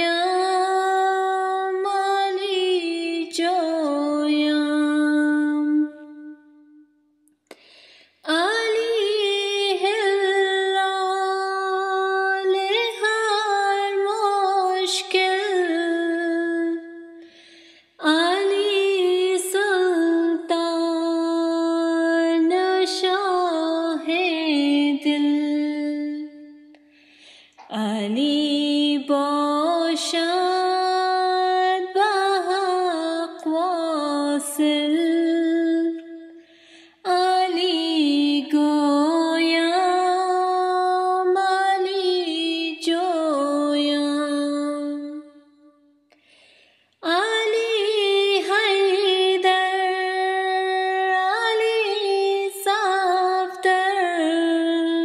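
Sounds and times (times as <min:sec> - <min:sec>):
woman singing unaccompanied: 0:00.0 - 0:06.5, 0:08.3 - 0:17.2, 0:18.0 - 0:26.8, 0:27.6 - 0:36.4, 0:37.0 - 0:45.7, 0:47.0 - 0:55.0.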